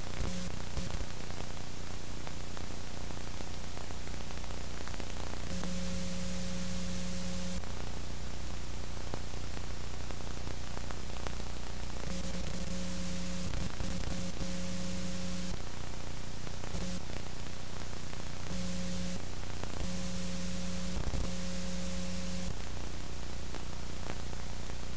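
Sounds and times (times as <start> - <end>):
low electrical hum: 0.0 - 24.9
static hiss: 0.0 - 24.9
buzzing tone: 0.2 - 0.9, 5.5 - 7.6, 12.1 - 15.6, 16.7 - 17.1, 18.5 - 19.2, 19.8 - 22.6.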